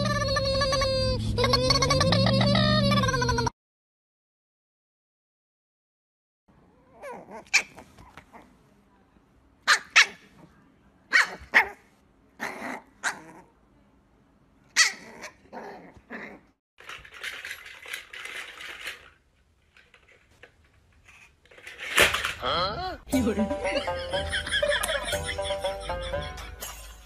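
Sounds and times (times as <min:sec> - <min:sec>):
puppy yapping: 0:06.9 - 0:08.5, 0:09.7 - 0:10.4, 0:11.1 - 0:13.5, 0:14.7 - 0:16.4.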